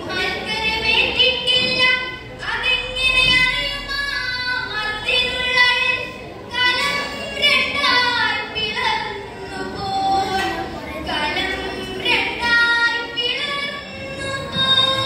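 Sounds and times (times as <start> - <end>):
girl chanting melody: 0.0 - 15.0.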